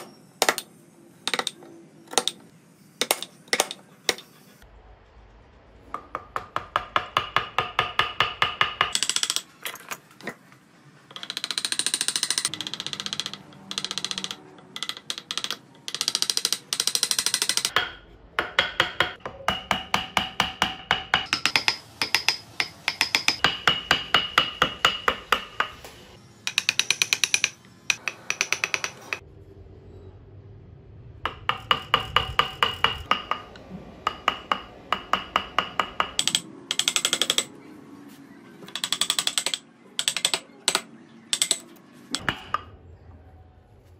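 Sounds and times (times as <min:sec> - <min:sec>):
hammer tapping steel chisel: 0:03.0 - 0:04.3, 0:11.1 - 0:25.9, 0:26.5 - 0:29.2, 0:31.3 - 0:37.5, 0:38.7 - 0:42.7.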